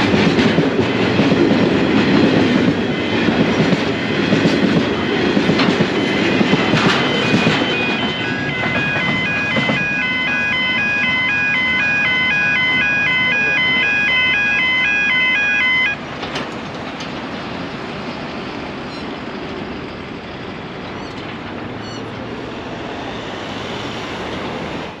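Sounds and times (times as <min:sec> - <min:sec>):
level crossing warning bells: 0:00.0 - 0:16.2
outdoor noise rush: 0:00.0 - 0:25.0.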